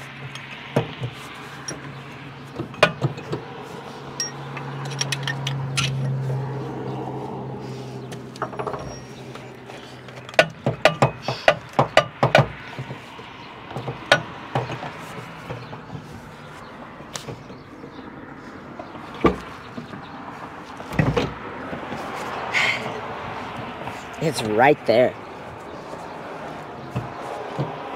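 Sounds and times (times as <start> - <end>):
metal tapping and clanking: 0.0 - 3.5, 4.2 - 6.2, 8.1 - 16.1.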